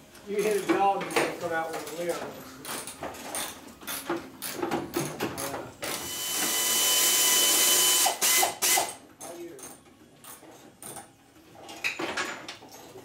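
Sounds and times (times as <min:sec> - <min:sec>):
pneumatic air ratchet whine: 0:05.9 - 0:09.0.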